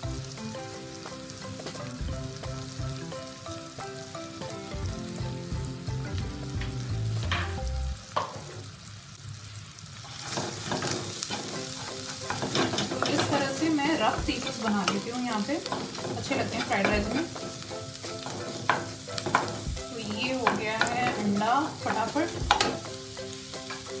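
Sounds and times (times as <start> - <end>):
egg sizzling in oil: 0.0 - 24.0
spatula scraping wok: 10.0 - 24.0.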